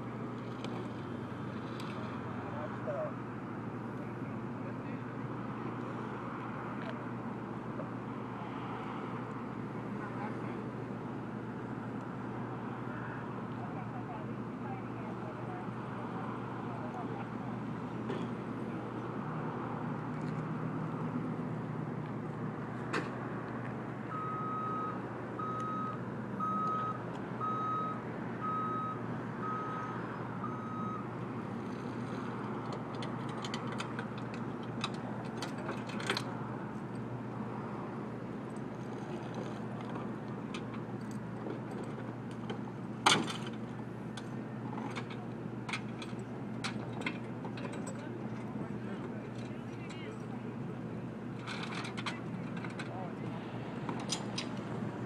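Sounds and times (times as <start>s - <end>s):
engine rumble: 0.0s - 55.0s
street noise: 0.0s - 55.0s
vehicle backup alarm beeping: 24.1s - 31.9s.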